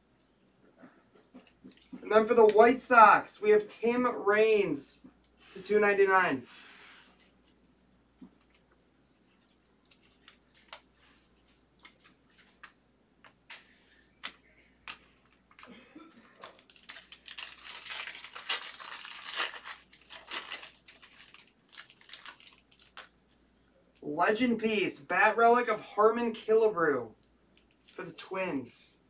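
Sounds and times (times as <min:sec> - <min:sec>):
small clicks and rustles: 0:08.2 - 0:15.7
wrapper crinkling and tearing: 0:16.4 - 0:23.2, 0:27.5 - 0:28.2.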